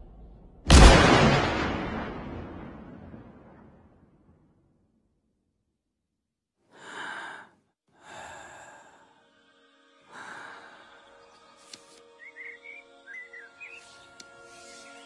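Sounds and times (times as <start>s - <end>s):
breathy sighing exhalations: 6.7s - 9.2s, 10.1s - 11.2s
faint music with held tones: 9.2s - 15.0s.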